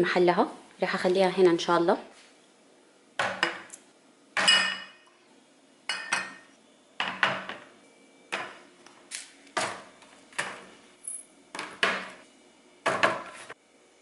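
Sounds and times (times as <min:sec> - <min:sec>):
bottles and jars knocking and clinking: 0:04.4 - 0:05.0, 0:05.9 - 0:07.7.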